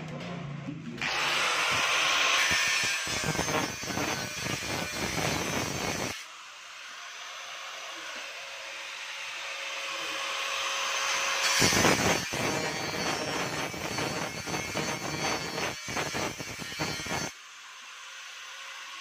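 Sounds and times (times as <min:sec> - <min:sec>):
angle grinder cutting metal: 0:01.0 - 0:19.0.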